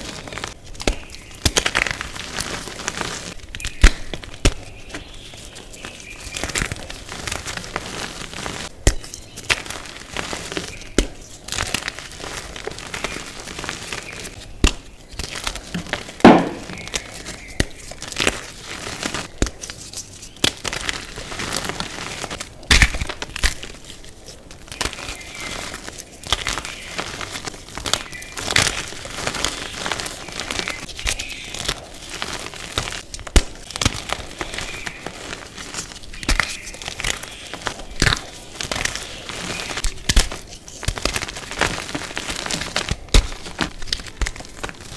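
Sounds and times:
chalk pieces snapping: 0:10.5 - 0:44.9.

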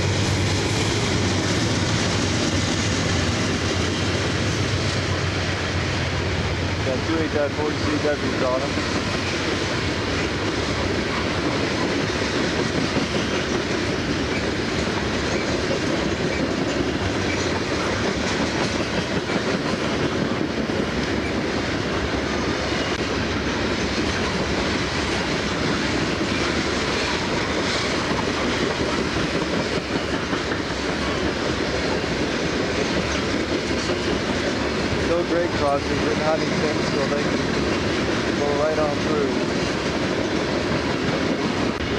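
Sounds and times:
freight train wheels rumbling: 0:00.0 - 0:41.9.

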